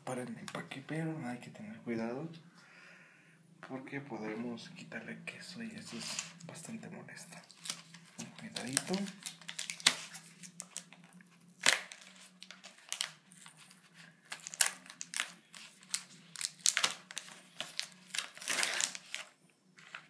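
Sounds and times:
plastic wrapping crinkling and tearing: 0:05.8 - 0:06.7, 0:07.3 - 0:20.0.

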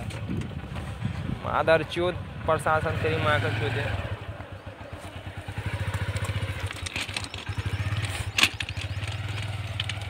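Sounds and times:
motorcycle engine putter: 0:00.0 - 0:00.9, 0:04.9 - 0:10.0
stones crunching: 0:05.0 - 0:10.0.

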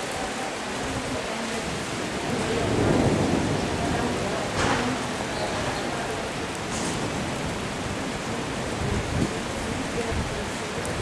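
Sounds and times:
heavy rain on stone paving: 0:00.0 - 0:11.0
low rumble of thunder: 0:00.9 - 0:11.0.

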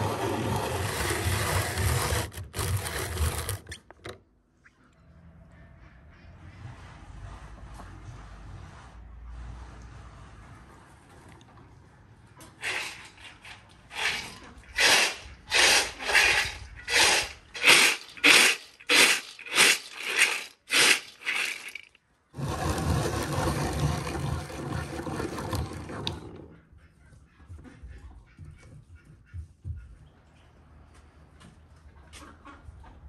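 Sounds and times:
rotary grater grinding nuts: 0:00.0 - 0:03.8, 0:12.6 - 0:26.4
nuts rattling in plastic bowl: 0:12.6 - 0:26.0.

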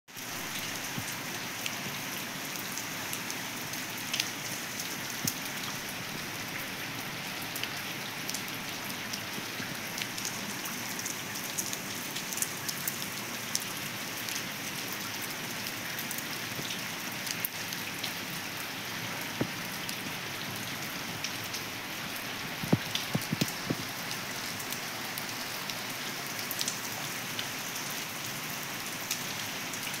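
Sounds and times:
rain on concrete roof: 0:00.1 - 0:30.0
drops ticking and splashing: 0:22.4 - 0:25.8.

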